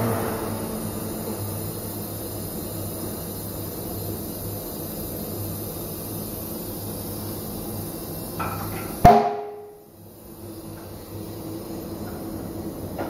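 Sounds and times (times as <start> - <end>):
workshop hum: 0.0 - 13.0
sharp metallic clank: 8.4 - 9.8.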